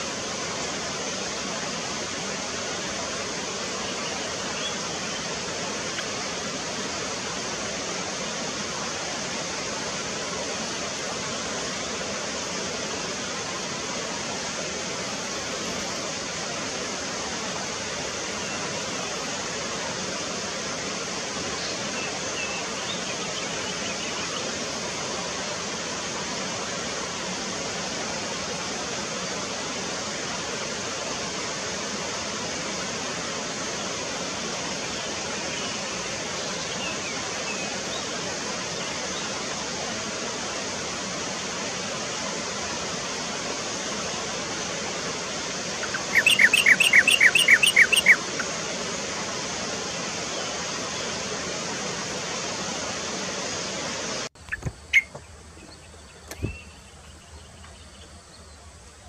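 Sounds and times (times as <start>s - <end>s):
steady rushing hiss: 0.0s - 59.0s
bird chirping rapidly: 45.8s - 48.5s, 54.4s - 58.5s.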